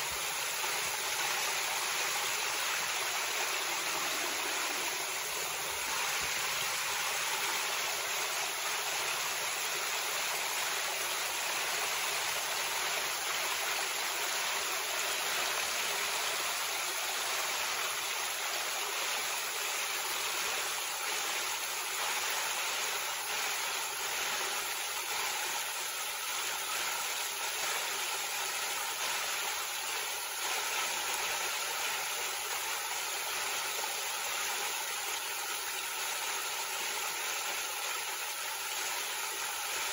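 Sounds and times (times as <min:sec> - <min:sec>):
creek water running over rocks: 0:00.0 - 0:39.9.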